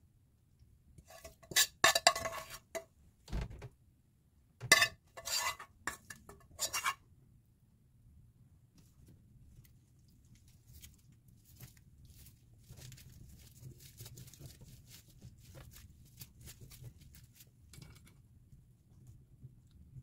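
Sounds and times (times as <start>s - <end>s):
crackling of seaweed sheet: 10.3s - 17.4s.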